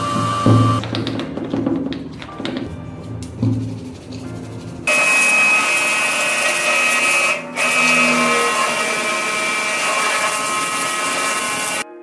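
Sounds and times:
pressure washer motor whine: 0.0 - 0.8.

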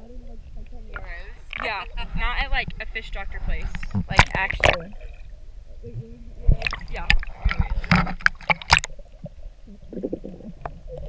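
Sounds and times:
water sloshing underwater: 0.0 - 11.0
sharp clicks and splashes: 0.9 - 1.9, 3.6 - 5.3, 6.5 - 9.5.

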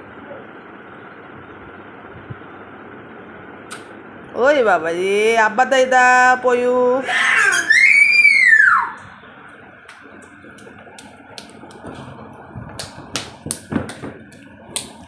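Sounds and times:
child squealing: 7.0 - 9.0
children clapping: 9.9 - 12.1, 12.7 - 15.0.

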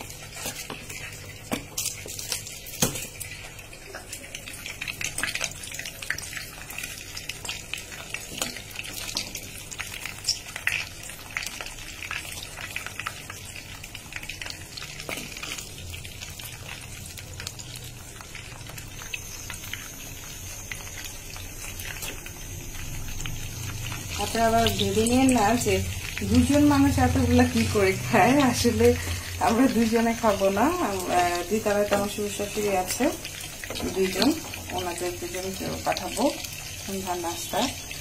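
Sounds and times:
oil popping and crackling: 0.0 - 38.0
patties sizzling in oil: 0.0 - 38.0.

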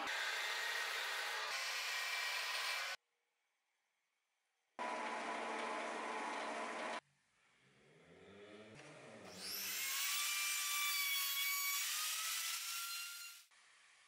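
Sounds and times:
power tool cutting wood: 0.0 - 3.0, 9.2 - 13.5.

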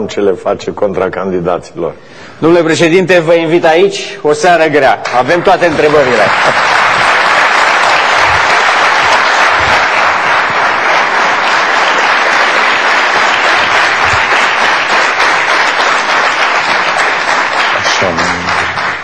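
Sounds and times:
audience applauding: 5.0 - 19.0.

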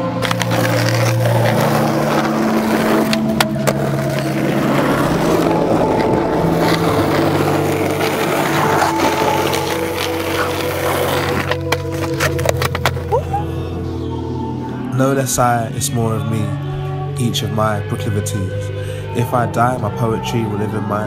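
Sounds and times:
skateboard wheels rolling on asphalt: 0.0 - 13.2
skateboard clacks: 6.5 - 13.0.

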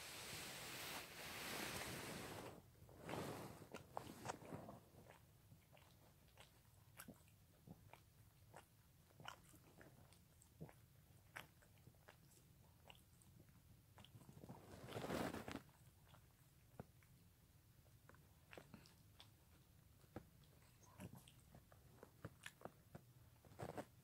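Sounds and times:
dog licking paw: 0.8 - 13.3, 14.0 - 17.3, 17.9 - 24.0.

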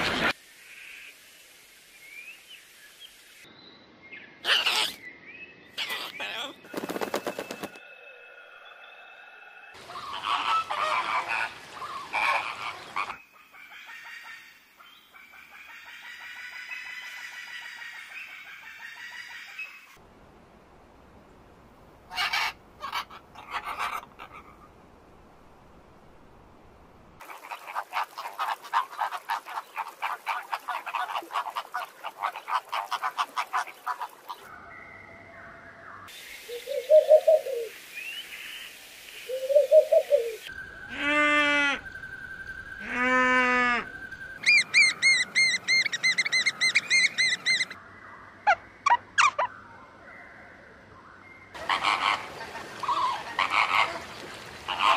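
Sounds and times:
fast rattling bird chatter: 5.8 - 7.8
long drawn-out bird calls: 9.7 - 20.0, 36.0 - 49.6, 51.5 - 54.9
low bird hoots: 36.5 - 37.7, 39.3 - 41.9.

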